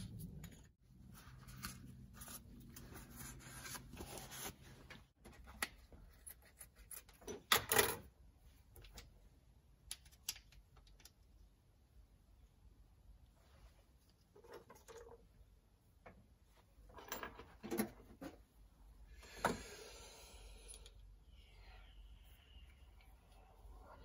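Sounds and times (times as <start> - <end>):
low steady hum: 8.0 - 24.0
small clicks of parts: 9.8 - 11.4.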